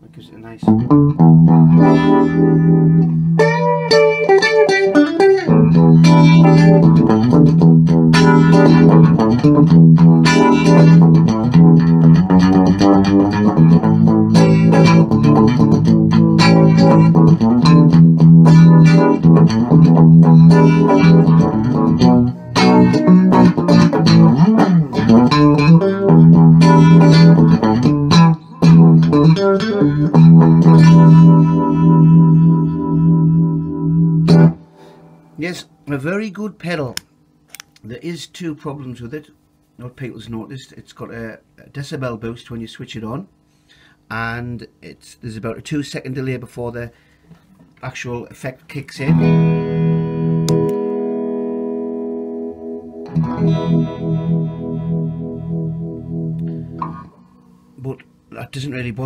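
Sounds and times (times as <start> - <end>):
electric guitar riff with modulation: 0.6 - 36.0, 49.0 - 58.4.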